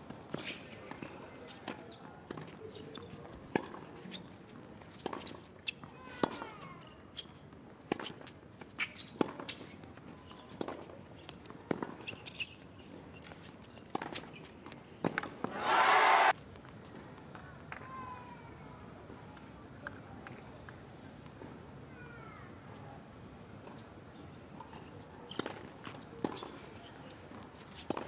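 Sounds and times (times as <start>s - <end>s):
shoes squeaking on court: 0.3s - 3.4s, 4.0s - 14.9s, 24.1s - 28.0s.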